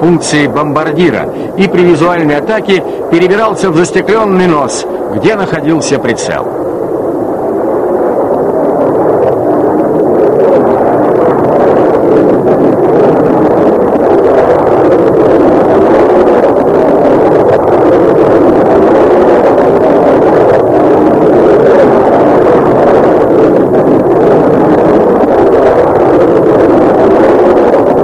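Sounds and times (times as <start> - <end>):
aircraft engines droning: 0.0 - 12.5.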